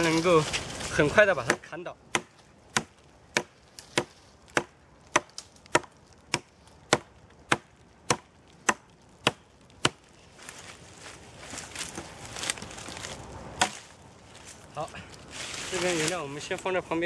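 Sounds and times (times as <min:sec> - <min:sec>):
blade chopping log: 0:01.4 - 0:10.0.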